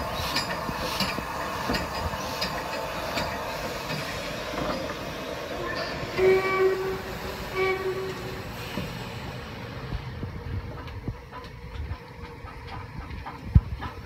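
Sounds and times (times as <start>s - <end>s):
wheels clanking and clicking: 0.0s - 6.9s, 10.0s - 14.0s
locomotive low rumble: 0.0s - 14.0s
steam locomotive whistle: 5.6s - 8.8s.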